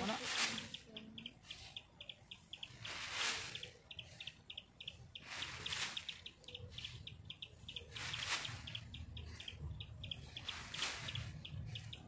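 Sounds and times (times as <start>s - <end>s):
rapid high chirping: 0.0s - 12.0s
shovel swishing through bran: 2.8s - 3.6s.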